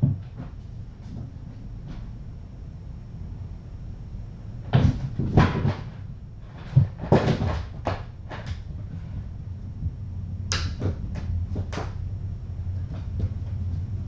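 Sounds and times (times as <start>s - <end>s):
steady low hum: 0.0s - 14.0s
soft knocks and rattles: 4.7s - 9.1s.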